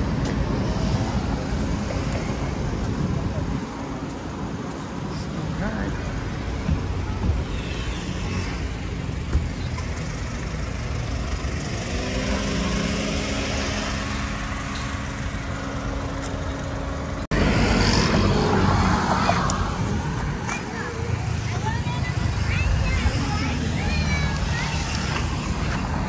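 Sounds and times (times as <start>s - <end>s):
road traffic noise: 0.0s - 26.0s
vehicle engine hum: 0.0s - 26.0s.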